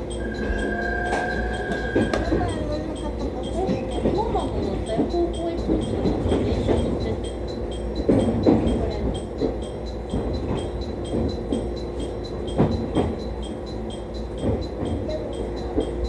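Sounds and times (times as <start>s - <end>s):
train rumbling over track: 0.0s - 16.0s
train wheel clacks: 0.0s - 16.0s.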